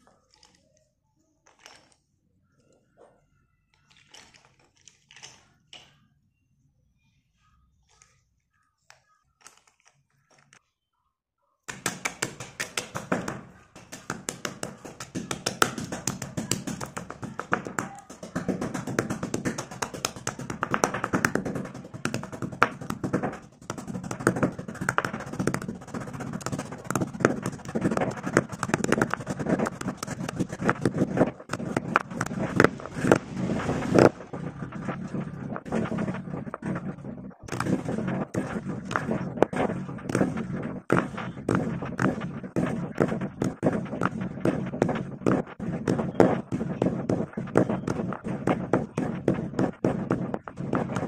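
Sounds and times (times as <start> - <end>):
pestle crushing in stone mortar: 11.7 - 51.0.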